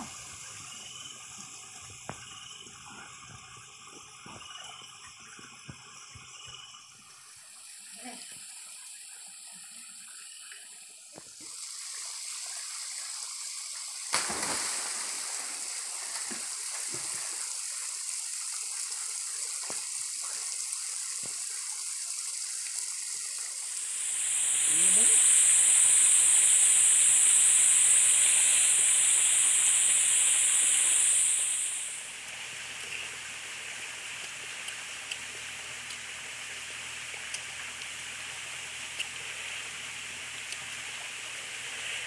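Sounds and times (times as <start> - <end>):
waterfall rushing into pool: 11.2 - 42.0
swimmer splashing into water: 14.1 - 17.2.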